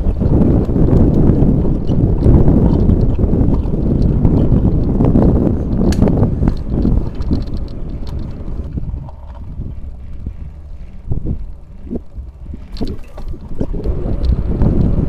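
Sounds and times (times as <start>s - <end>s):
bicycle tyre rumble on asphalt: 0.0s - 15.0s
wind buffeting microphone: 0.0s - 15.0s.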